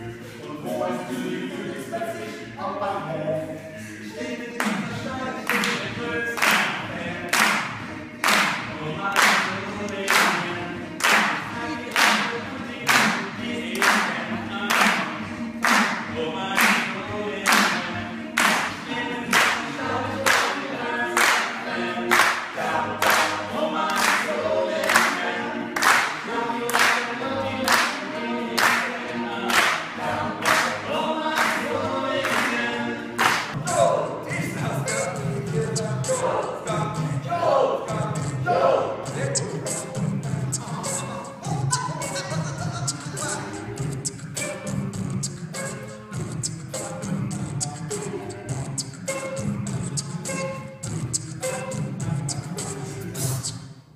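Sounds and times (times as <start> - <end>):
male a cappella group singing: 0.0 - 53.7
audience clapping along: 5.4 - 13.2, 13.8 - 16.9, 17.5 - 25.2, 25.8 - 32.6, 33.2 - 33.6.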